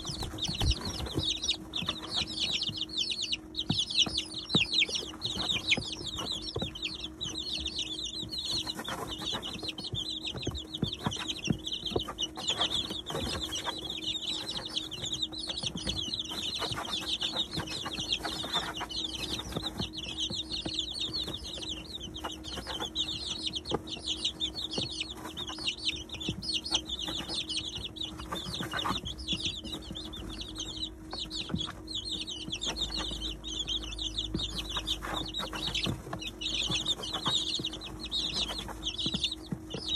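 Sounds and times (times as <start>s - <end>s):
beaks pecking at feed: 0.0s - 39.9s
chicks peeping: 0.0s - 39.9s
steady low hum: 0.0s - 39.9s.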